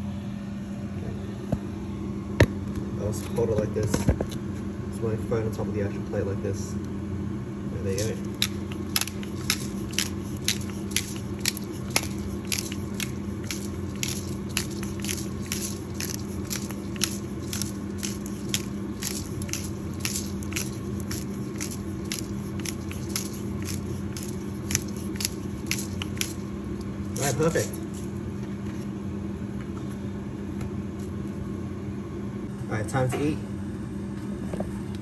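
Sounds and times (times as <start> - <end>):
pepper grinder crunching: 8.0 - 28.1.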